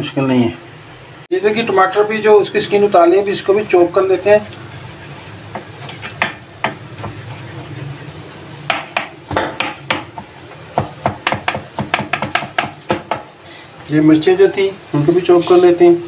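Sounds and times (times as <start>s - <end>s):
knife chopping on plastic board: 8.7s - 13.3s.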